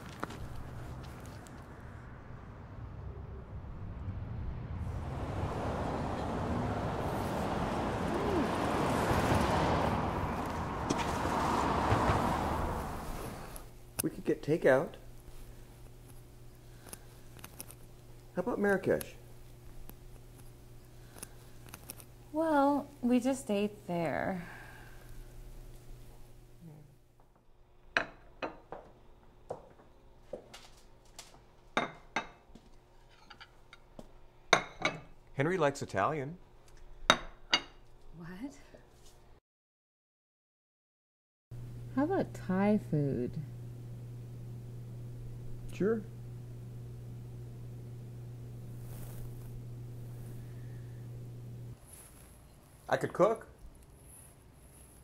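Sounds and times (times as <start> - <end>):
street traffic rushing: 0.0 - 13.9
glasses and dishes clinking: 34.6 - 35.1.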